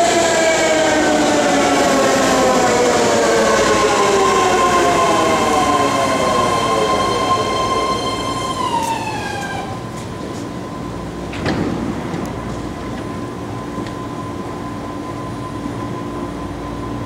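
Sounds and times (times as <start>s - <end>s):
train motors whining: 0.0s - 10.5s.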